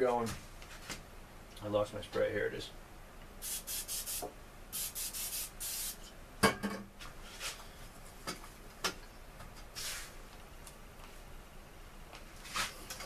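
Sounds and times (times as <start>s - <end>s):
aerosol spray hissing: 3.4s - 6.0s.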